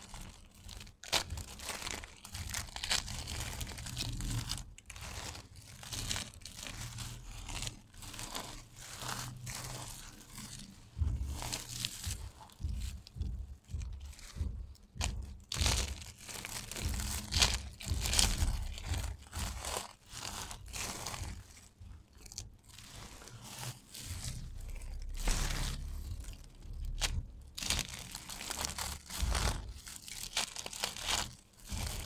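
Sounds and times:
soap crunching in hands: 0:00.0 - 0:32.0.

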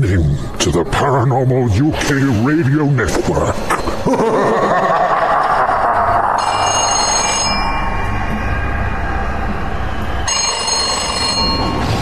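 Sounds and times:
telephone ringing: 0:10.3 - 0:11.8.

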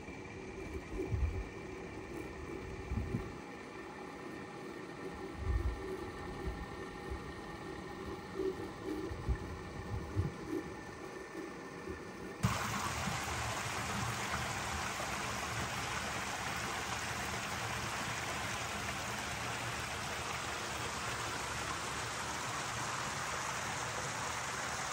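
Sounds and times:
flowing water rushing: 0:12.4 - 0:24.9.

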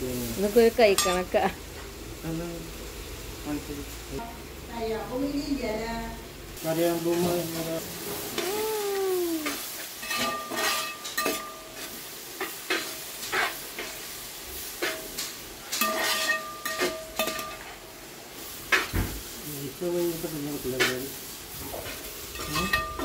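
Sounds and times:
onions sizzling in a pan: 0:00.0 - 0:23.0
metal utensil scraping a pan: 0:09.4 - 0:14.0, 0:14.8 - 0:17.8, 0:20.7 - 0:23.0.

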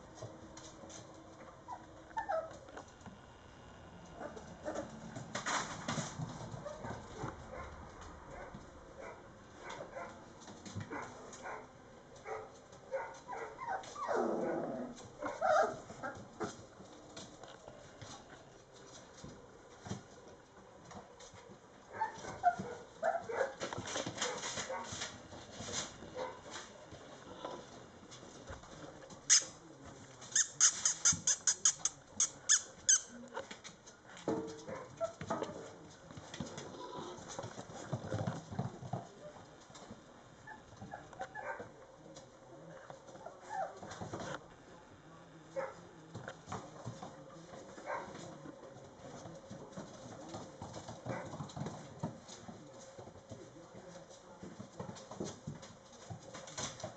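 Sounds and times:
puppy squeaking: 0:01.7 - 0:02.5, 0:29.3 - 0:29.6, 0:30.3 - 0:33.2
puppies scrabbling on wooden floor: 0:04.1 - 0:44.5, 0:45.6 - 0:56.9.

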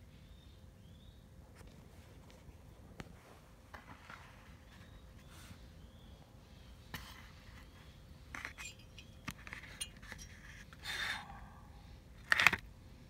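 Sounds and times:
metal part clicks and scrapes: 0:08.3 - 0:11.1.

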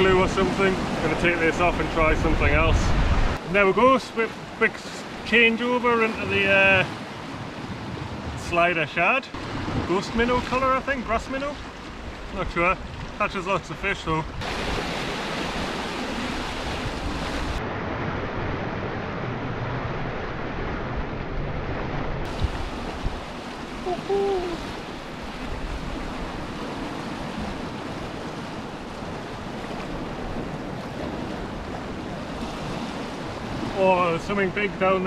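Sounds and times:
surf breaking over rocks: 0:14.4 - 0:35.0.

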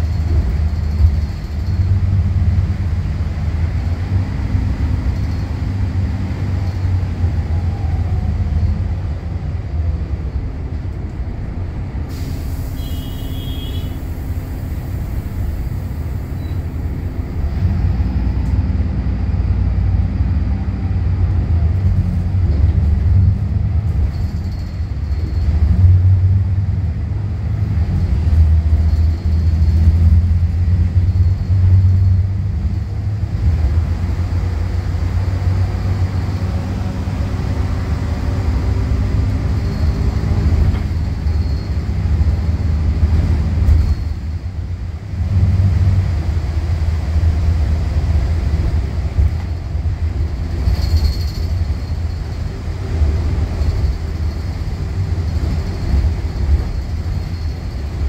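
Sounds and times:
bus diesel engine running: 0:00.0 - 0:58.0
short hiss of air: 0:12.1 - 0:16.9.

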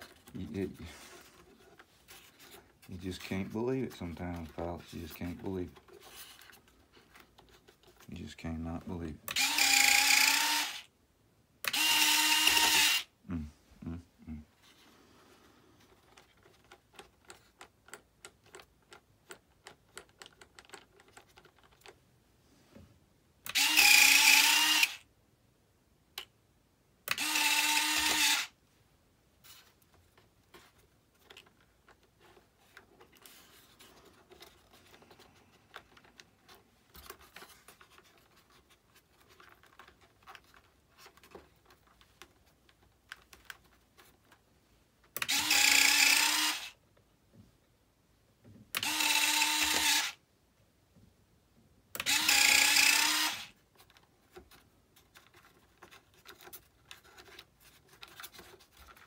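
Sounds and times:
small clicks and taps: 0:16.1 - 0:22.0.

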